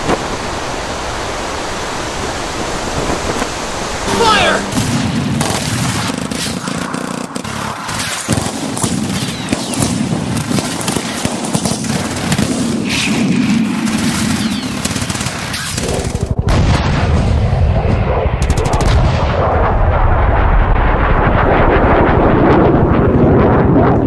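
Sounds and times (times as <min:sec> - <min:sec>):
machine-gun and rifle fire: 0:05.4 - 0:16.9, 0:18.4 - 0:19.1.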